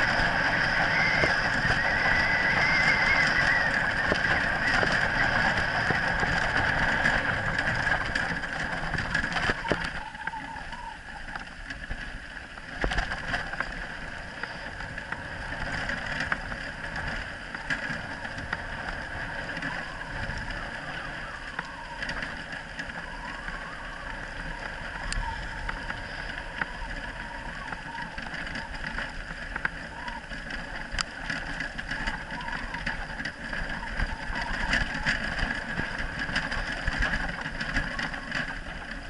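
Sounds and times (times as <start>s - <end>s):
sled rig rolling and rattling: 0.0s - 39.0s.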